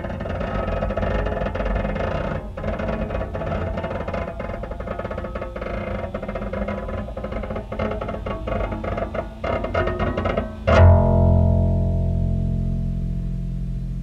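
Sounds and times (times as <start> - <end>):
steady low bass: 10.6 - 14.0.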